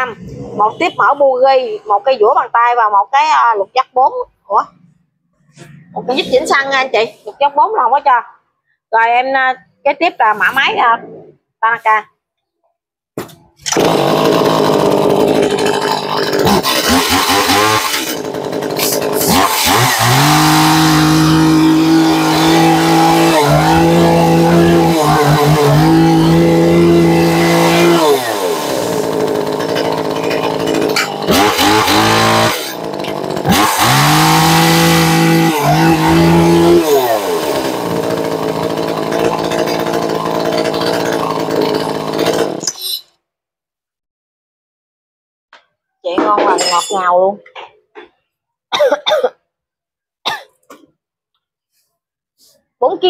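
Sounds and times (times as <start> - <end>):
chainsaw revving and idling: 13.7 - 42.7.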